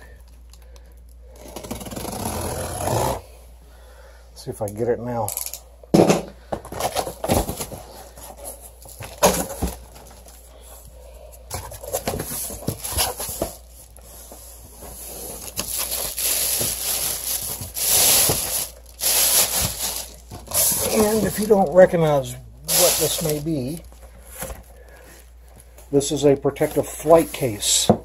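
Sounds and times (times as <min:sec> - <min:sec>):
plastic wrapping crinkling: 0:11.6 - 0:27.6.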